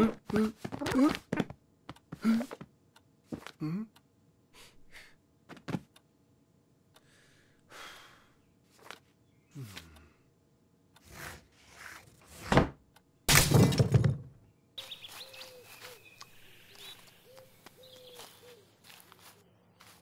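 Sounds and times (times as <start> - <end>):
birds chirping: 7.6 - 10.6, 14.4 - 20.0.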